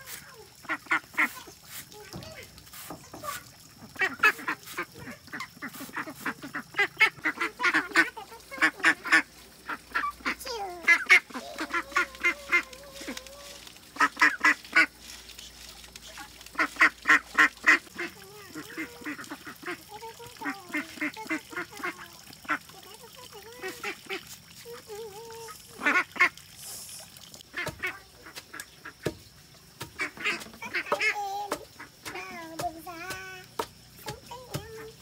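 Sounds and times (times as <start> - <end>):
ducks quacking: 0.6 - 1.6, 3.3 - 24.8, 25.4 - 26.4, 29.8 - 32.6.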